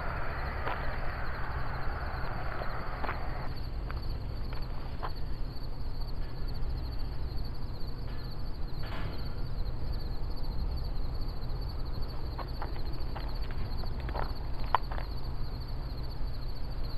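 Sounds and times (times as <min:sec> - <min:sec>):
low rumble: 0:00.0 - 0:03.7
insects trilling: 0:00.0 - 0:16.9.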